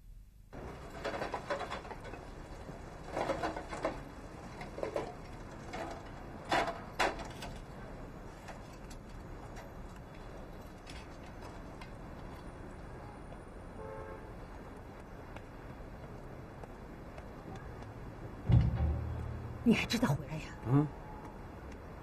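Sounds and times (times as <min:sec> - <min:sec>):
bicycle knocks: 0:18.4 - 0:19.6.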